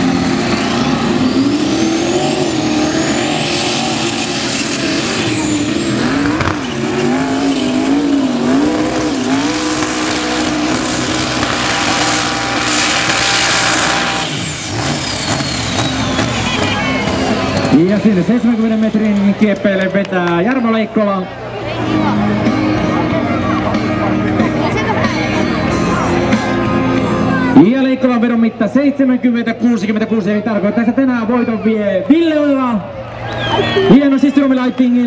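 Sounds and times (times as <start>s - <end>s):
high whine: 0.0s - 18.9s
tractor engine at full throttle: 0.0s - 35.0s.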